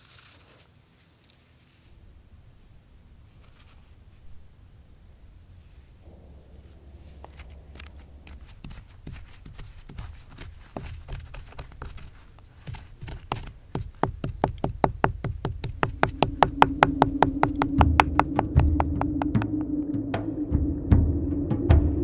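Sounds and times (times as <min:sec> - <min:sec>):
music with held low note: 0:05.0 - 0:09.8, 0:15.8 - 0:22.0
stone pestle knocking in mortar: 0:12.7 - 0:19.6.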